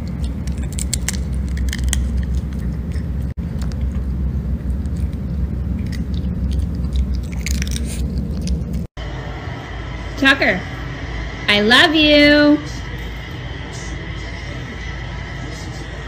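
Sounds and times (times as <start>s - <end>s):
dog chewing a treat: 0.0s - 8.9s
steady low rumble: 0.0s - 16.0s.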